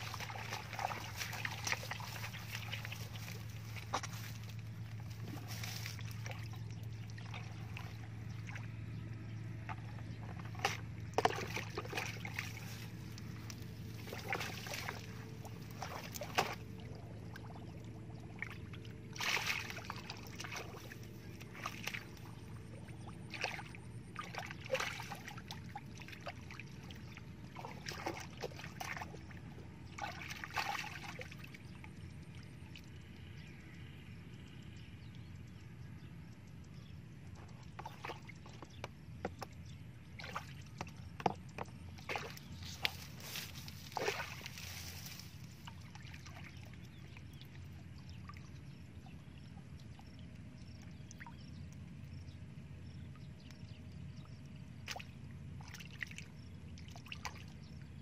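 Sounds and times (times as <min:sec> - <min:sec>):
hands splashing in muddy water: 0:00.0 - 0:08.8, 0:10.4 - 0:17.5, 0:19.1 - 0:22.4, 0:23.3 - 0:26.6, 0:27.6 - 0:29.2, 0:29.9 - 0:31.5, 0:42.0 - 0:46.7.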